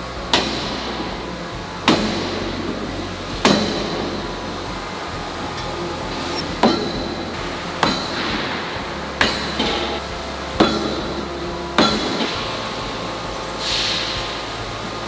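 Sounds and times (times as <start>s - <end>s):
machine hum: 0.0s - 15.0s
forging dies banging on steel: 1.8s - 4.5s, 5.5s - 12.6s.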